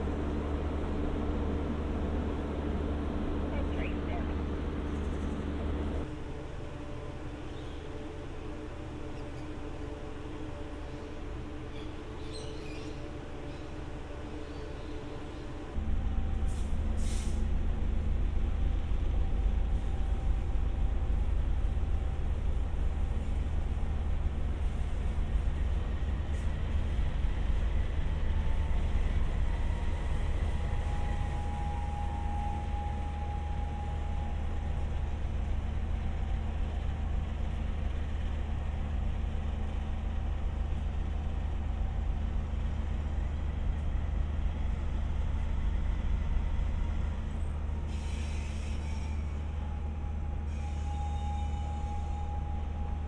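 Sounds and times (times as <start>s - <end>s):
diesel locomotive rumbling: 0.0s - 53.0s
air hiss: 16.5s - 17.5s.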